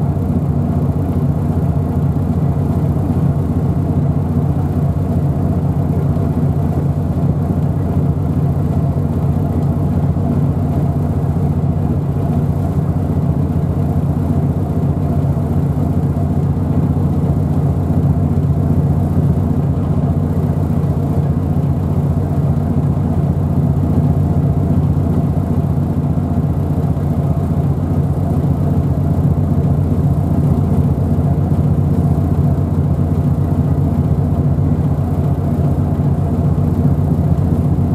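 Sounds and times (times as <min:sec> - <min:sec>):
engine running steadily: 0:00.0 - 0:37.9.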